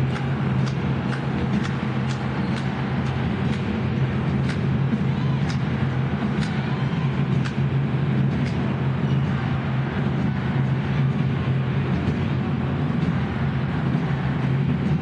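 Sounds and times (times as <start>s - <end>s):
crowd roar: 0.0s - 15.0s.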